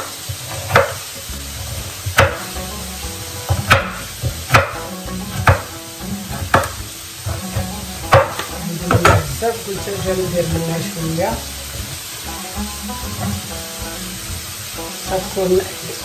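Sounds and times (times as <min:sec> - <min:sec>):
knife chopping on wooden board: 0:00.4 - 0:01.0, 0:02.1 - 0:02.4, 0:03.5 - 0:05.7, 0:06.5 - 0:06.8, 0:07.6 - 0:09.2.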